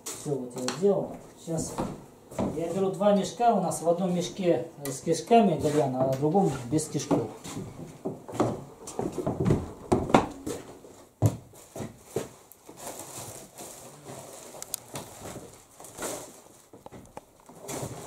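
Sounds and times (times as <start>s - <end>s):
footsteps knocking and thumping: 0.7s - 2.9s, 7.0s - 12.4s
plastic and cloth bags rustling: 10.4s - 18.0s.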